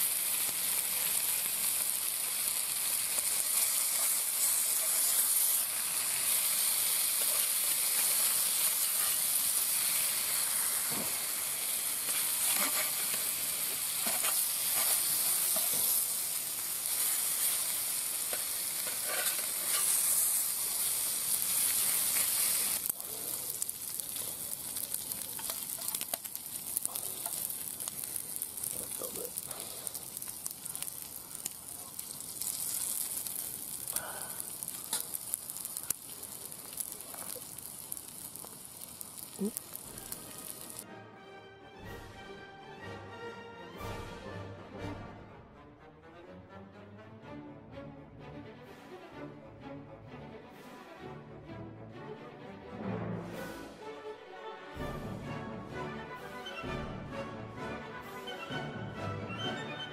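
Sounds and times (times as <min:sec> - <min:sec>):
bacon sizzling in a frying pan: 0:00.0 - 0:40.8
metal spatula scraping pan: 0:12.4 - 0:13.2, 0:18.8 - 0:20.4.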